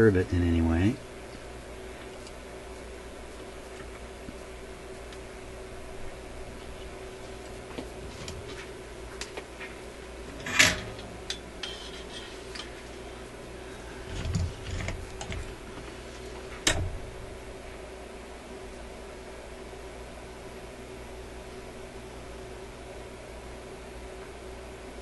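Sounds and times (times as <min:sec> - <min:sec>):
faint steady hum: 0:00.0 - 0:25.0
rustle of handling: 0:01.3 - 0:05.3
tools clattering: 0:10.3 - 0:12.8.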